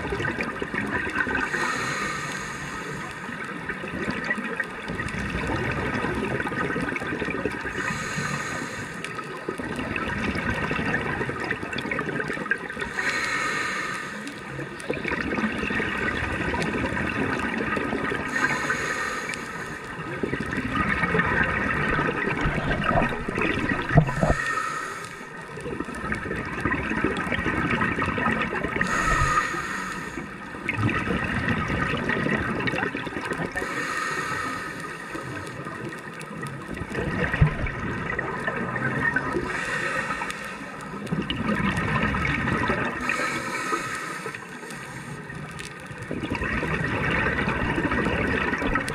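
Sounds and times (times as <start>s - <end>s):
gurgling exhaled bubbles: 0.0s - 13.3s, 14.3s - 44.6s, 45.2s - 48.9s
hissing regulator inhalation: 1.4s - 3.2s, 7.7s - 9.1s, 12.9s - 14.4s, 18.3s - 20.0s, 22.4s - 25.4s, 28.8s - 30.4s, 33.6s - 35.6s, 39.4s - 41.0s, 43.0s - 45.4s.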